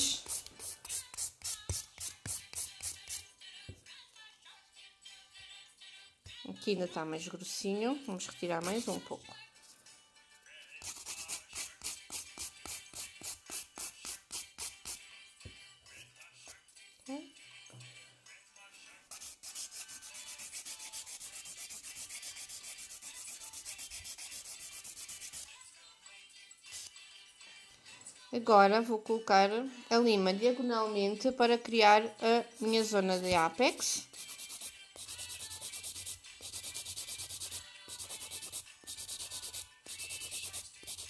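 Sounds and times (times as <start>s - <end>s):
nail file filing a nail: 0.0s - 3.3s, 8.4s - 9.0s, 10.7s - 15.0s, 19.1s - 25.5s, 26.7s - 27.0s, 32.6s - 41.0s.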